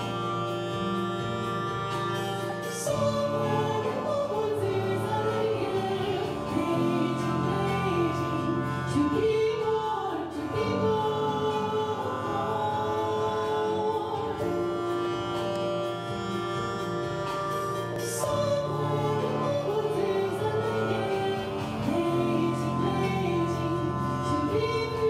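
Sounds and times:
woman singing operatically: 2.8 - 15.0, 18.0 - 25.0.

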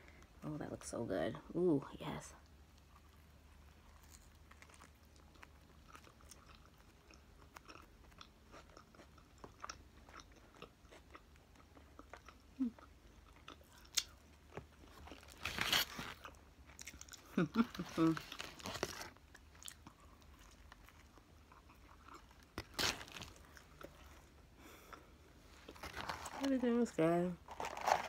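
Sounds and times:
chewing food: 2.7 - 26.4
foil wrapper rustle: 15.2 - 16.3, 17.6 - 19.2, 27.5 - 28.0.

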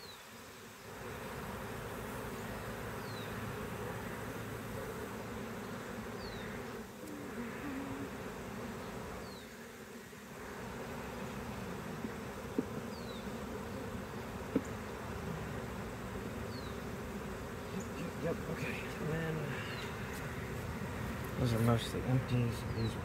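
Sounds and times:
honeybees buzzing: 0.0 - 23.0.

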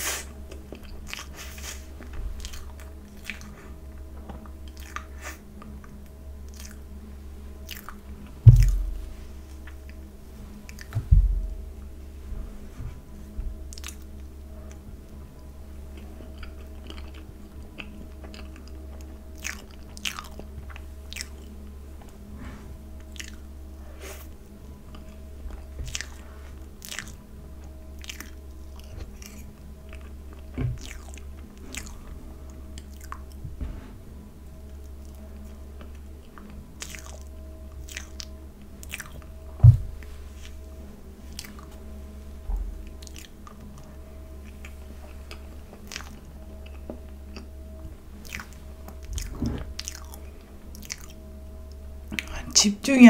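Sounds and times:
steady low hum: 0.0 - 53.0
wet mouth clicks and chewing: 0.2 - 7.0, 7.6 - 8.8, 10.7 - 11.0, 13.7 - 14.9, 15.9 - 21.6, 23.0 - 23.5, 24.9 - 26.2, 26.8 - 32.1, 32.7 - 33.4, 35.0 - 39.3, 41.3 - 41.8, 42.8 - 52.3
low thumps: 8.4 - 13.7, 39.4 - 40.8.

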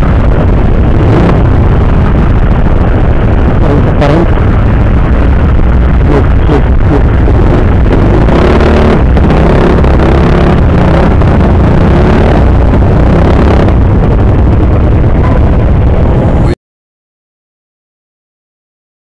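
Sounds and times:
scooter engine running: 0.0 - 16.3.

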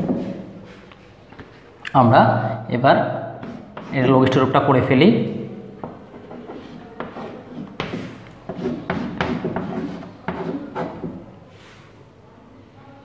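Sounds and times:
chalk tapping on blackboard: 3.4 - 4.1, 5.8 - 11.3
chalk scraping on blackboard: 3.4 - 4.4, 5.8 - 11.9.

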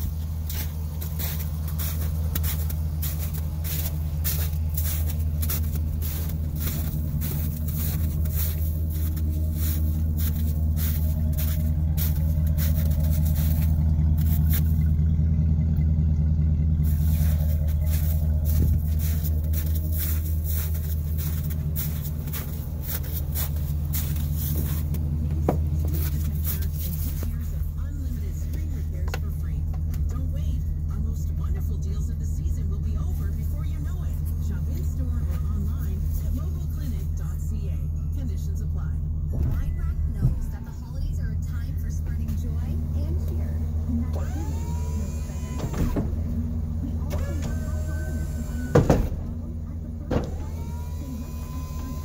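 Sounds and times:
footsteps crunching in snow: 0.0 - 15.0, 16.8 - 30.2, 32.6 - 37.7
truck engine idling: 0.0 - 52.0.

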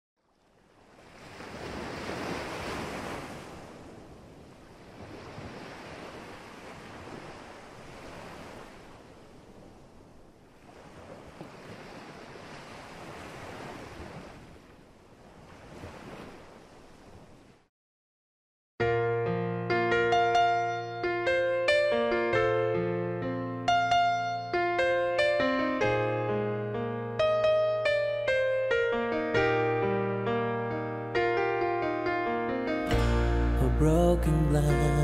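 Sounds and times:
ocean waves breaking: 0.2 - 17.6.

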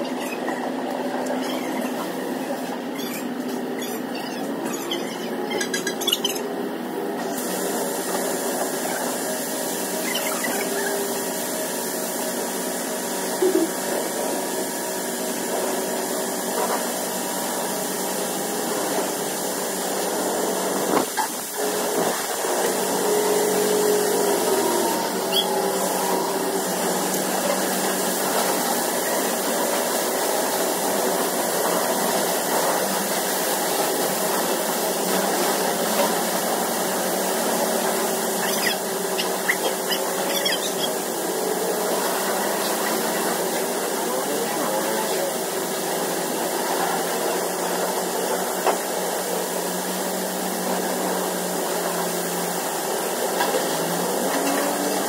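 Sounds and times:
brief squeals: 0.0 - 2.1, 2.9 - 6.5, 25.3 - 25.6, 38.4 - 41.0
pressure washer spraying water: 0.0 - 55.0
pump humming: 21.4 - 46.4.

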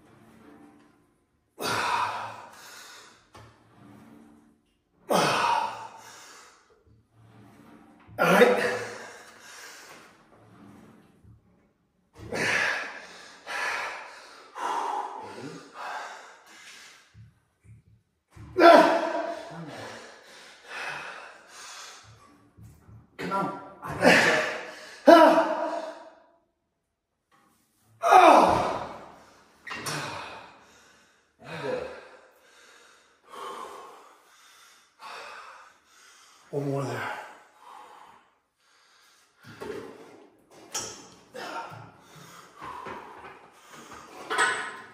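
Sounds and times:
man breathing heavily: 1.6 - 3.2, 12.2 - 17.3, 18.9 - 22.3, 24.1 - 26.0, 29.1 - 36.6, 37.3 - 39.9, 41.4 - 44.4.

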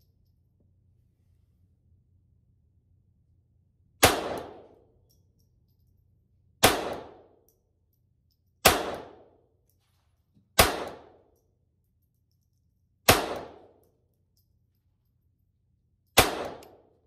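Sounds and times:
pistol shots with echo: 4.0 - 4.8, 6.6 - 7.4, 8.6 - 9.4, 10.6 - 11.3, 13.1 - 13.8, 16.2 - 17.0.

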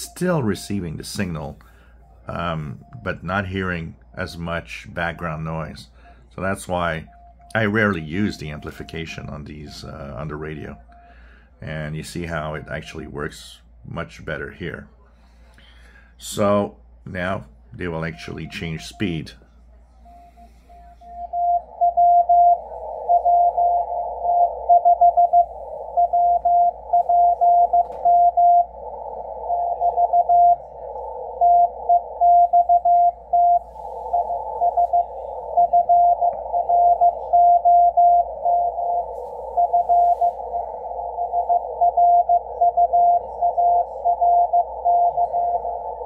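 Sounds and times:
radio hiss: 0.0 - 46.0
morse code tone: 20.0 - 46.0.

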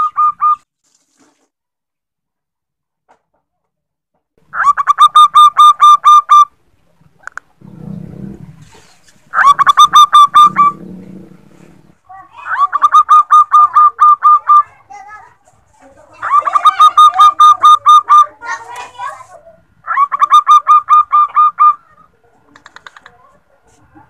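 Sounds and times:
dove calling rapid clipped notes: 0.0 - 0.6, 4.6 - 6.5, 9.3 - 10.8, 12.5 - 14.7, 16.2 - 18.3, 19.9 - 21.8, 22.5 - 23.2.

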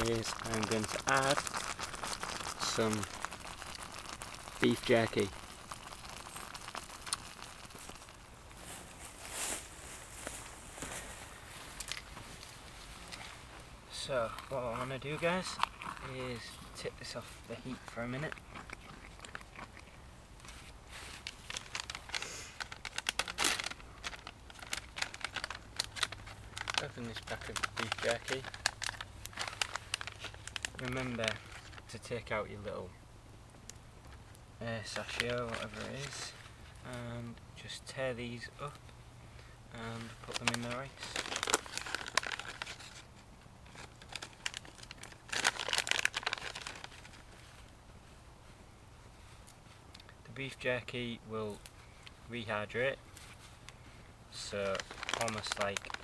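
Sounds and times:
plastic packaging crinkling: 0.0 - 13.3, 14.3 - 32.4, 34.1 - 36.9, 39.8 - 47.7, 54.4 - 56.0.

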